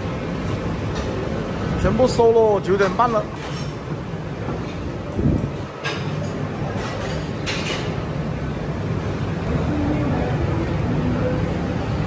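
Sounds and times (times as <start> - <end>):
food court background hum: 0.0 - 12.0.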